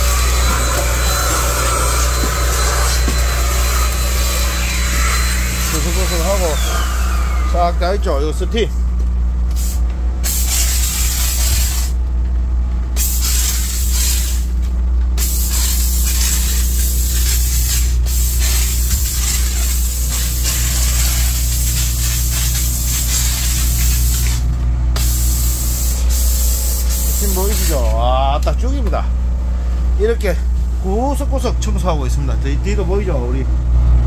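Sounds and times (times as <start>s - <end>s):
steam cleaner hissing: 0.0s - 7.8s, 9.5s - 12.0s, 13.0s - 14.5s, 15.2s - 28.0s
steady low hum: 0.0s - 34.0s.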